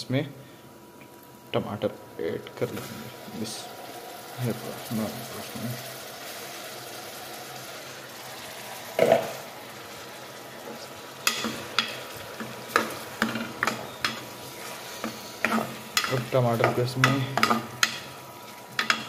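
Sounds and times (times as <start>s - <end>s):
food sizzling in hot oil: 2.1s - 19.0s
metal spoon stirring in pot: 11.2s - 18.1s, 18.8s - 19.0s.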